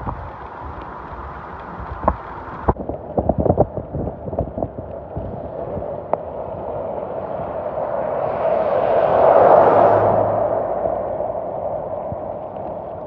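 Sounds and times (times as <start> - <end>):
hailstones tapping: 0.0 - 6.3
rain and hail hissing: 0.0 - 7.5, 11.2 - 13.0.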